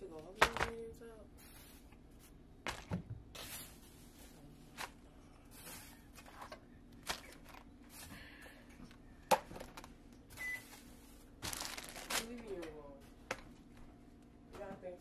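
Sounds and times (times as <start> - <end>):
faint steady hum: 0.0 - 15.0
packages and utensils knocking: 0.3 - 0.9.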